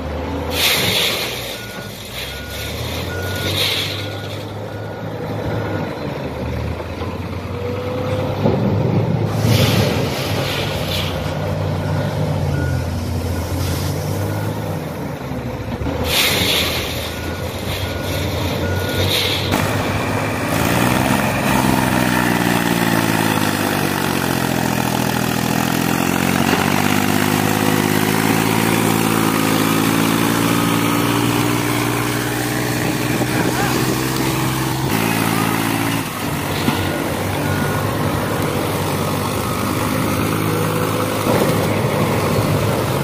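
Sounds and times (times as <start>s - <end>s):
truck engine revving: 0.0s - 43.0s
brief air hisses: 0.5s - 1.6s, 9.3s - 11.5s, 16.1s - 17.8s
short reversing beeps: 1.1s - 6.0s, 16.4s - 23.5s, 32.8s - 38.9s.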